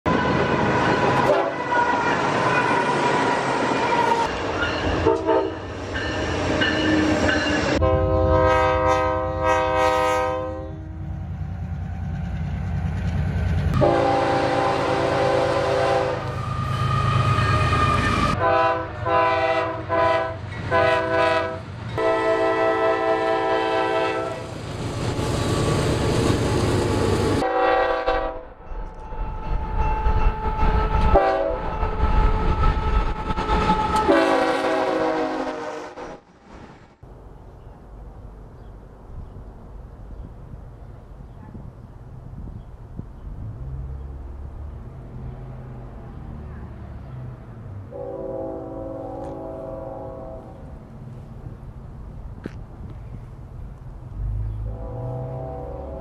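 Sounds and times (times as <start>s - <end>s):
locomotive air horn blasts: 0.1s - 4.3s, 5.0s - 5.7s, 7.8s - 11.0s, 13.8s - 24.5s, 27.4s - 28.5s, 30.4s - 36.0s, 47.9s - 50.6s, 54.6s - 56.0s
trains moving on rails: 0.1s - 56.0s.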